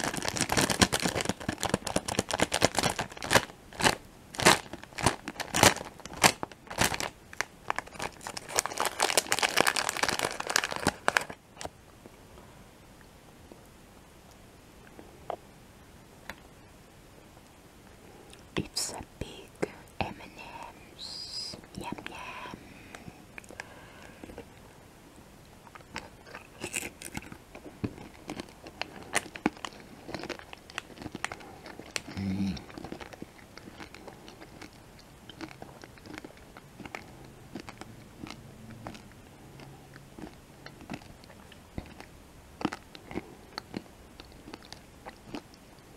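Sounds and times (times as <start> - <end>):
candy crunching while chewed: 0.0 - 11.7, 25.6 - 45.9
plastic wrapper crinkling: 0.0 - 11.7, 25.8 - 39.0.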